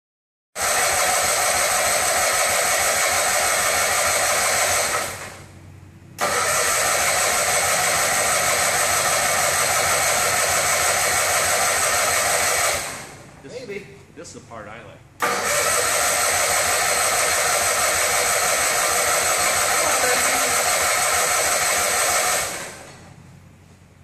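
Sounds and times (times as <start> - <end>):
aircraft tug high-pitched whir: 15.2 - 23.1.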